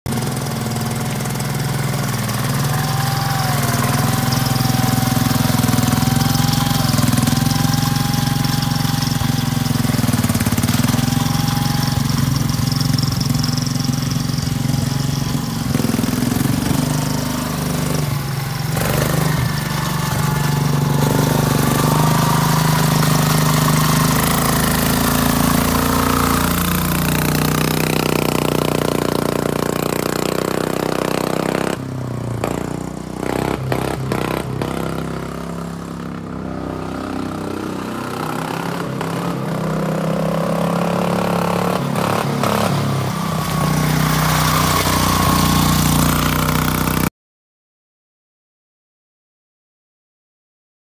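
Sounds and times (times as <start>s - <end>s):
small truck engine running: 0.1s - 47.1s.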